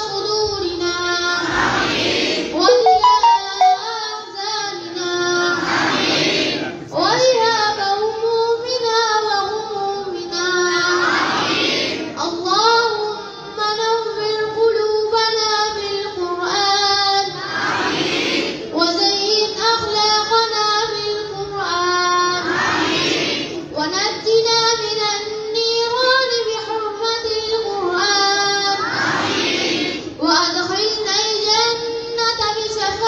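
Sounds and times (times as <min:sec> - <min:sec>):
children singing in unison: 0:10.9 - 0:12.1, 0:17.3 - 0:18.6, 0:22.4 - 0:23.5, 0:28.8 - 0:30.1.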